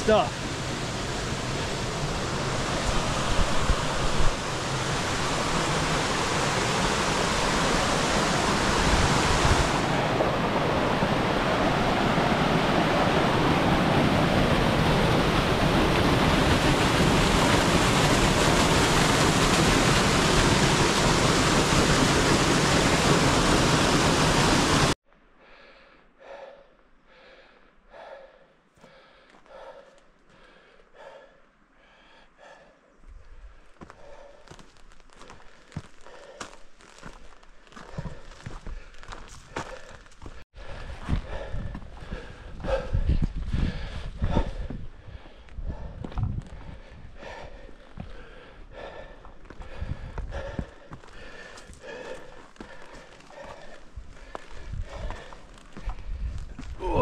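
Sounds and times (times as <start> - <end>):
person breathing heavily: 25.3 - 57.0.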